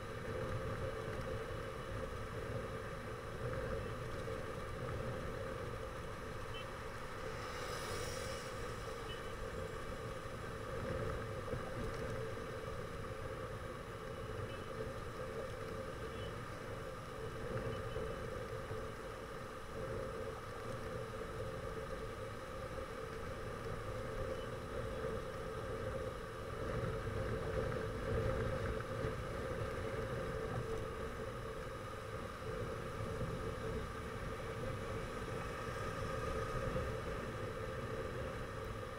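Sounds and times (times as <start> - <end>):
vehicle road rumble: 0.0 - 38.9
brief hiss: 7.0 - 9.6.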